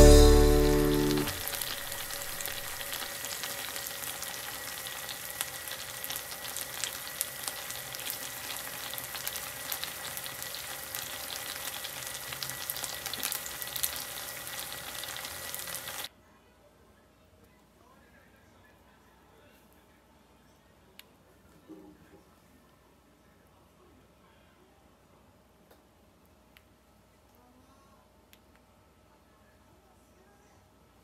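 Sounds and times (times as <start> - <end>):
dumplings sizzling in a pan: 0.0 - 16.1.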